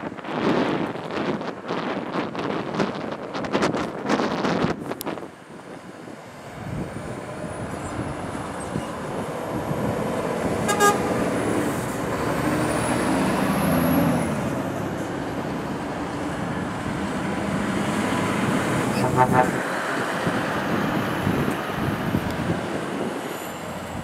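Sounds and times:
lorry passing by: 0:06.1 - 0:24.0
horn toot: 0:10.6 - 0:11.2, 0:18.9 - 0:19.6.

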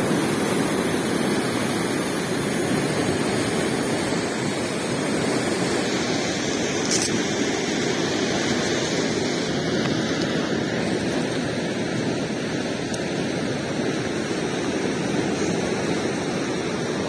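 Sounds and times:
turbulent river water rushing: 0:00.0 - 0:17.0.

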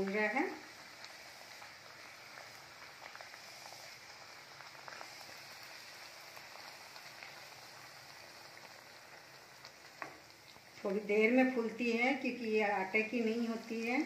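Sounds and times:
oil sizzling and crackling: 0:00.0 - 0:14.0.

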